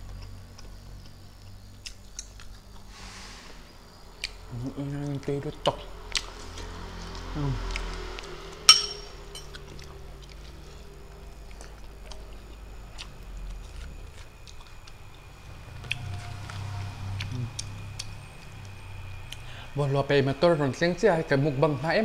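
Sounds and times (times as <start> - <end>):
chewing: 0.0 - 2.9, 9.4 - 19.5
metal spoon clinking on plate: 8.7 - 9.5.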